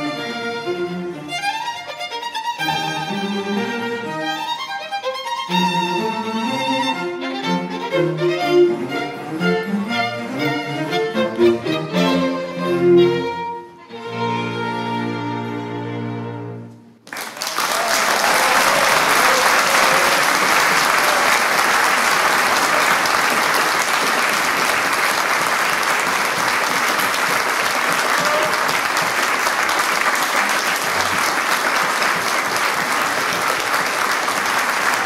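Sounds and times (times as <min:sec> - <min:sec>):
audience applauding: 0:17.0 - 0:35.0.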